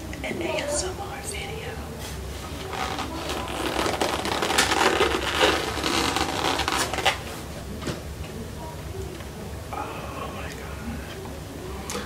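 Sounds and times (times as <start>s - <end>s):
foam box crinkling: 2.6s - 7.3s.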